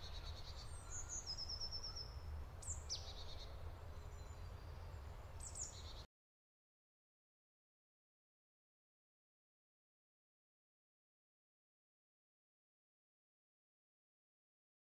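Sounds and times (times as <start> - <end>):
birdsong chirps and trills: 0.0 - 6.1.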